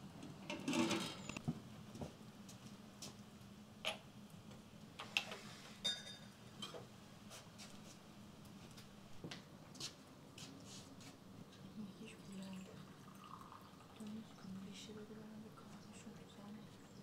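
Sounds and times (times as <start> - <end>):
wood fire crackling: 0.0 - 12.9.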